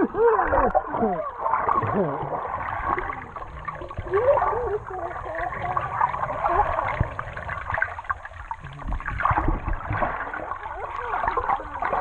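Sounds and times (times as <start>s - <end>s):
sea water sloshing and gurgling: 0.0s - 12.0s.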